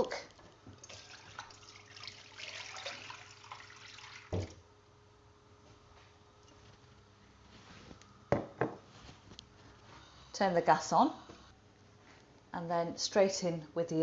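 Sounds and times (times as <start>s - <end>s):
milk pouring into a pan: 0.8s - 4.5s.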